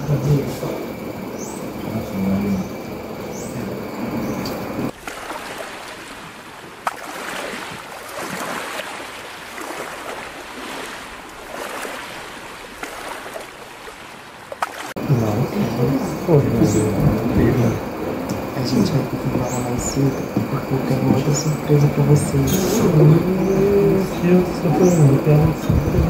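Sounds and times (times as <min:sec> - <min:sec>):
muffled room ambience: 0:00.0 - 0:04.9, 0:15.0 - 0:26.0
rushing water: 0:00.0 - 0:26.0.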